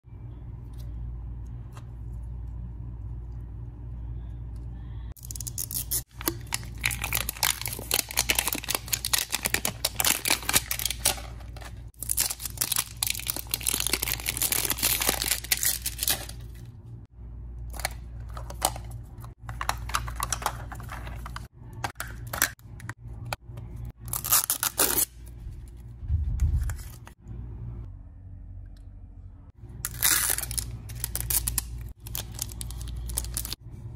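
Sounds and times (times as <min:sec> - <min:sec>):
plastic wrap crinkling and tearing: 0:05.2 - 0:16.5, 0:24.1 - 0:25.2, 0:29.9 - 0:33.6.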